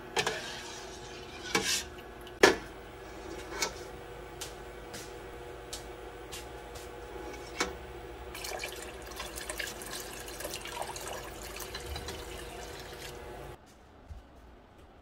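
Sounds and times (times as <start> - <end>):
steady hum: 0.0 - 15.0
liquid pouring into a pot: 8.3 - 13.6.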